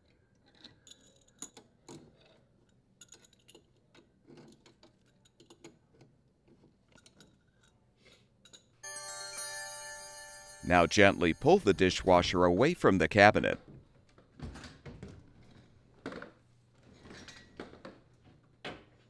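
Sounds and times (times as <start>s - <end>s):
steady chime-like tone: 8.8s - 12.6s.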